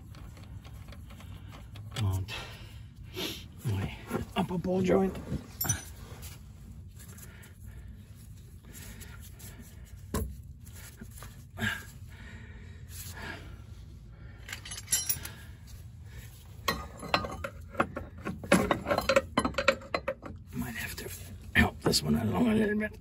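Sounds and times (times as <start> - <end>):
metal tools clinking and knocking: 5.4 - 6.2, 14.4 - 15.6, 16.6 - 20.4.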